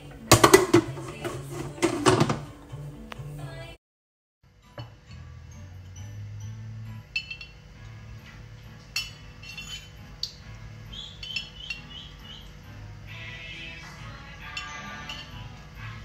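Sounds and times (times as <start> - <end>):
metal spoon clinking in glass jar: 5.5 - 7.6, 8.9 - 10.4, 11.2 - 11.9, 14.4 - 15.6.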